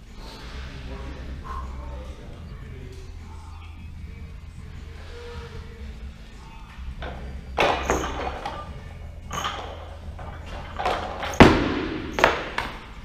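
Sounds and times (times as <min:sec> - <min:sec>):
barbell clanking with metallic ring: 0:07.6 - 0:12.4.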